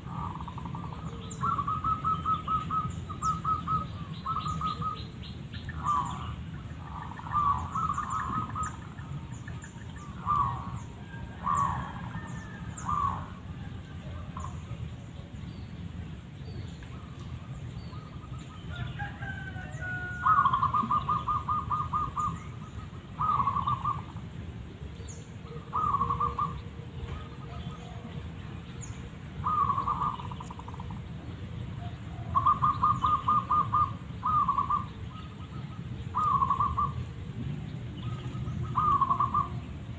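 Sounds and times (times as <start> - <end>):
doves cooing: 0.0 - 15.3, 16.8 - 39.9.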